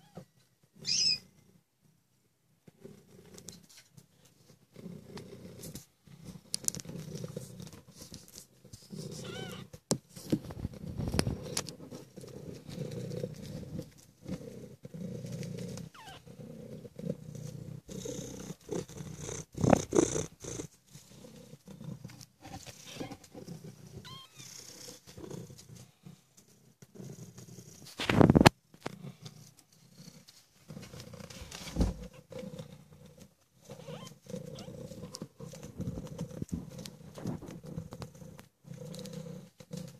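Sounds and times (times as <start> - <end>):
cats purring: 0.0 - 39.9
kittens squeaking: 0.8 - 1.2, 9.2 - 9.7, 15.9 - 16.2, 24.0 - 24.5, 33.8 - 34.7.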